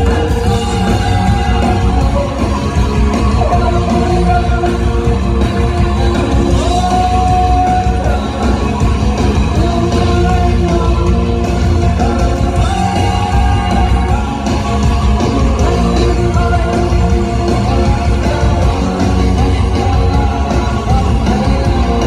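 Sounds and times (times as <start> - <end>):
live rock band playing: 0.0 - 22.0.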